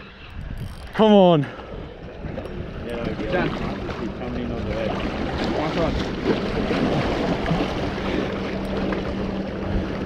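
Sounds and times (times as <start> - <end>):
steady low hum: 0.0 - 10.0
wind buffeting microphone: 0.0 - 10.0
sea water washing against rocks: 2.2 - 10.0.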